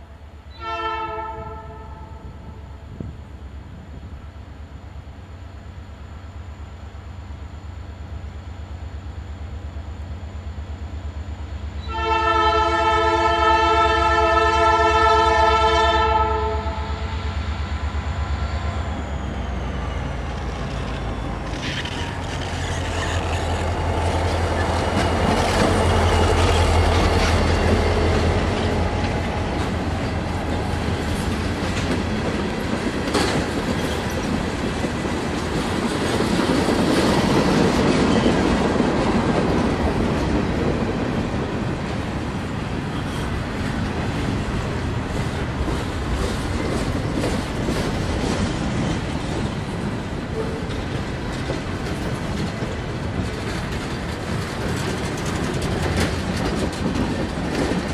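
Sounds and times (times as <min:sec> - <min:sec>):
diesel locomotive engine passing: 0:00.0 - 0:57.9
train air horn blast: 0:00.5 - 0:02.3, 0:11.8 - 0:17.2
freight car wheels clicking on rails: 0:50.8 - 0:57.9.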